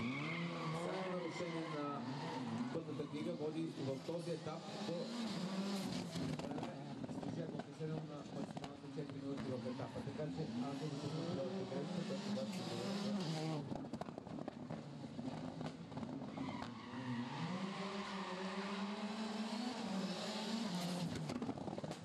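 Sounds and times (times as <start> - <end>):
rally car engine revving: 0.0 - 22.0
exhaust pops and crackles: 6.1 - 9.6, 13.6 - 16.8, 21.0 - 22.0.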